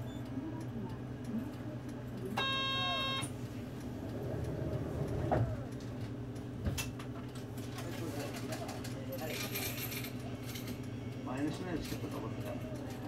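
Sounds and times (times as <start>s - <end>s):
electronic buzzer tone: 2.4s - 3.3s.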